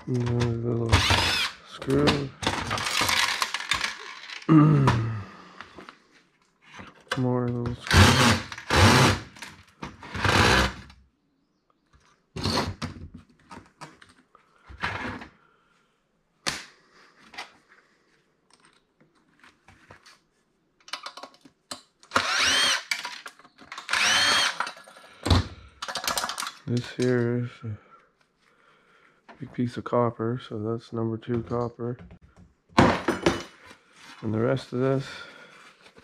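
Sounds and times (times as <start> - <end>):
screws and parts clinking: 0.0 - 4.5, 18.5 - 19.3, 20.8 - 27.2
cordless drill motor whine: 1.0 - 1.6, 7.9 - 9.2, 10.1 - 10.8, 22.2 - 22.9, 23.9 - 24.6.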